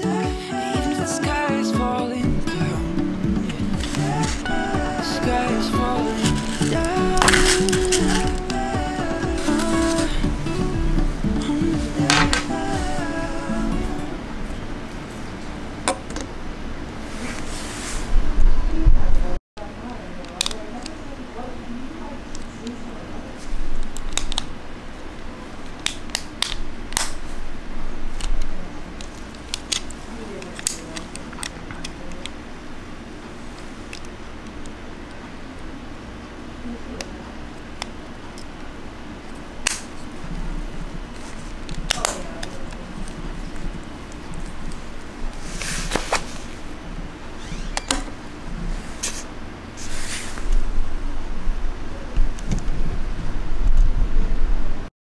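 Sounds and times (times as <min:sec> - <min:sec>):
plastic clicks and snaps: 0:20.2 - 0:21.0.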